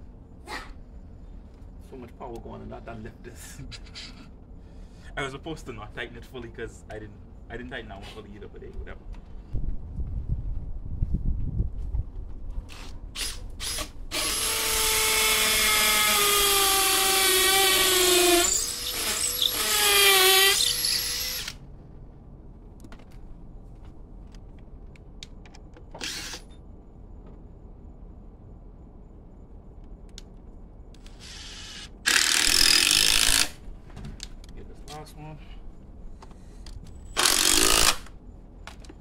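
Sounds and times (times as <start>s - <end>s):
cordless driver motor whine: 26.0s - 26.5s.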